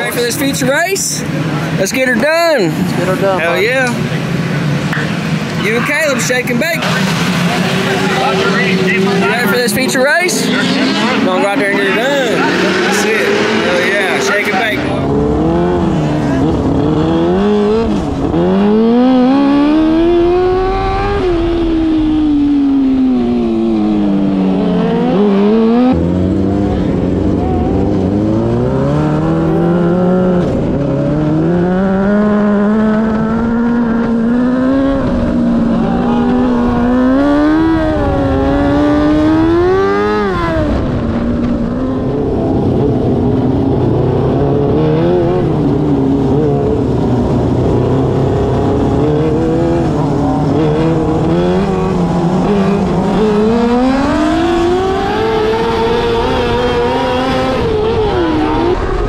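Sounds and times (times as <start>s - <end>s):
racing engines revving: 0.0s - 59.0s.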